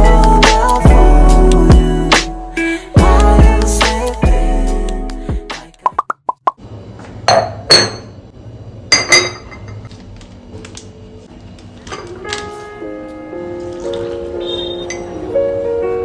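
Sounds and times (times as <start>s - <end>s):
cup clinking on saucer: 7.3s - 8.2s, 8.9s - 9.8s.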